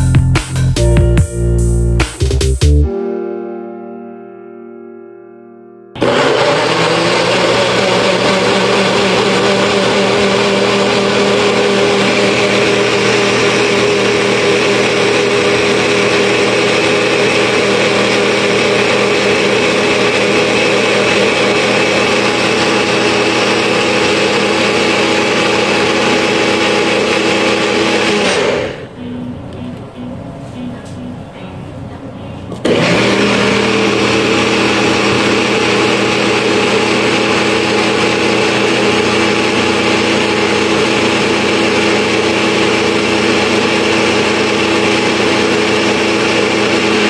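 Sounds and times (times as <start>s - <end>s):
blender motor running: 6.0s - 28.9s, 32.6s - 47.0s.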